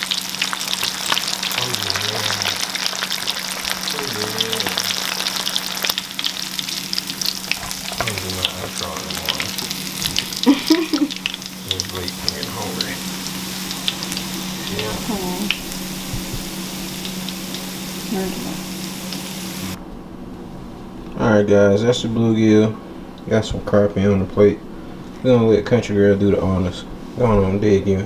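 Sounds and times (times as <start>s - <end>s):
fish frying in hot oil: 0.0s - 19.8s
low steady hum: 0.0s - 28.0s.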